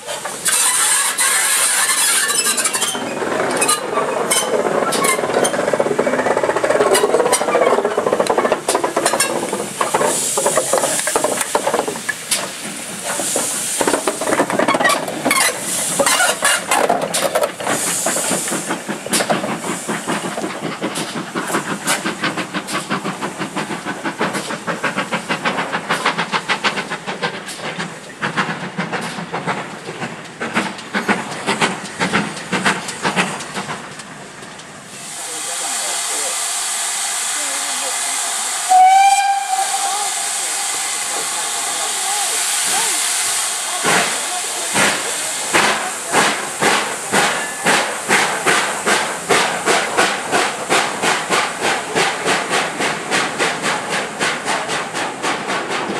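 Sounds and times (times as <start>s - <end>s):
steam locomotive hissing steam: 0.0s - 55.9s
rapid clicks and clanks: 2.9s - 34.7s.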